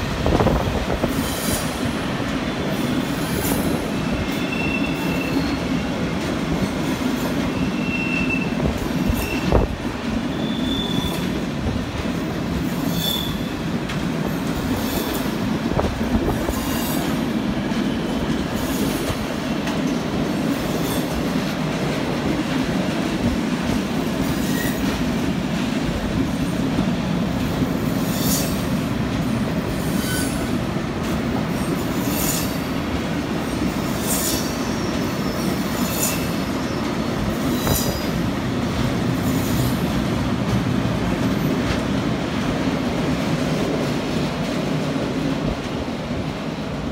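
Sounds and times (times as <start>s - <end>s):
train wheels rumbling on rails: 0.0s - 46.9s
high-pitched wheel squeals: 4.0s - 5.7s, 7.5s - 9.6s, 10.3s - 11.3s, 12.9s - 13.5s, 29.8s - 30.5s.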